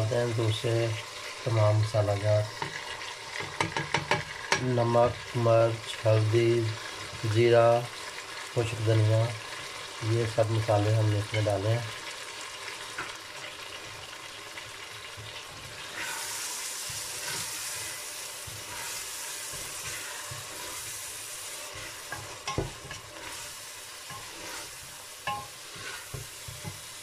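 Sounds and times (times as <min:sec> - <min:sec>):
masala sizzling in pot: 0:00.0 - 0:27.0
spatula knocking on pot: 0:03.4 - 0:04.6, 0:22.1 - 0:23.0, 0:25.2 - 0:26.9.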